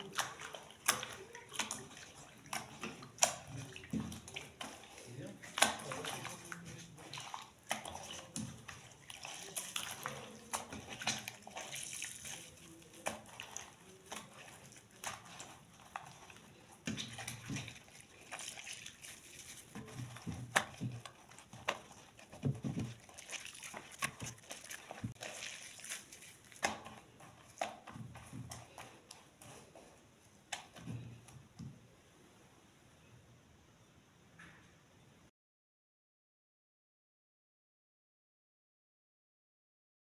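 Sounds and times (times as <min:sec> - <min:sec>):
wet socks rubbed by hand: 0:00.0 - 0:31.2
soapy water sloshing in a bowl: 0:00.0 - 0:32.0.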